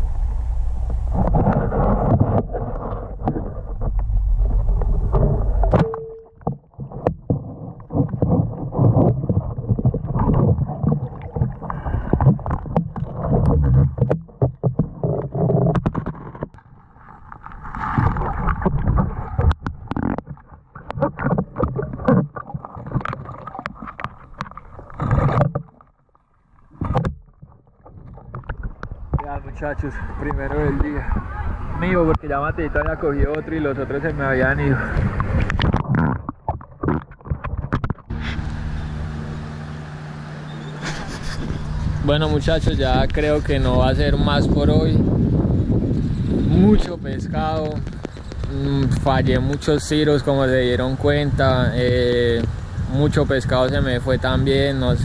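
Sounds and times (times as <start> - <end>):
low underwater rushing: 0.0 - 55.0
sharp knocks and clicks: 5.1 - 16.6
brief steady tone: 5.3 - 6.6.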